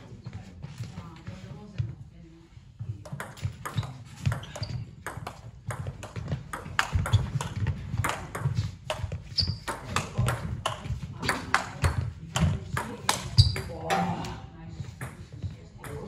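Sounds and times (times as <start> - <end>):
high squeak: 9.3 - 9.8.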